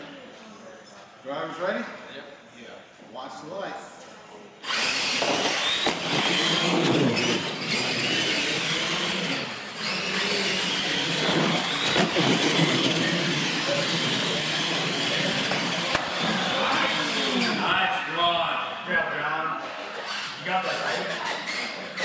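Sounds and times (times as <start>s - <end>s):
toy car motors whining: 4.6s - 17.7s, 19.8s - 22.0s
tyre and drivetrain rush: 5.6s - 17.6s.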